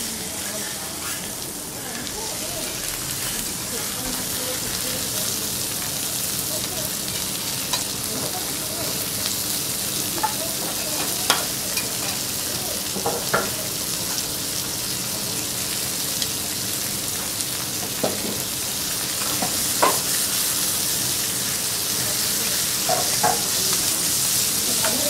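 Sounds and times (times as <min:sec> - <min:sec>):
meat sizzling on a griddle: 0:00.0 - 0:25.0
spatula clinking on metal griddle: 0:10.2 - 0:12.2.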